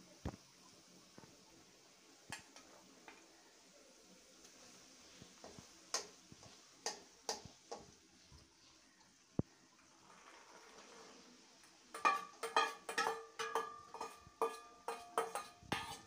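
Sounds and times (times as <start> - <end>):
metal spoon scraping pot: 11.9 - 16.0.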